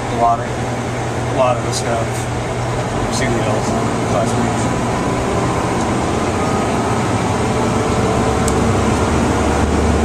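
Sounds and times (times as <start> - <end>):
diesel engine drone in cab: 0.0 - 10.0
road noise: 0.0 - 10.0.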